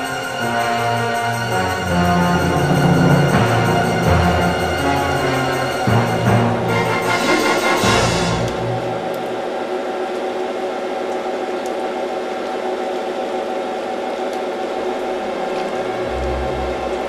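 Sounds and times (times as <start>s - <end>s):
orchestral music: 0.0s - 9.2s
mechanical whir and whine: 1.6s - 7.2s.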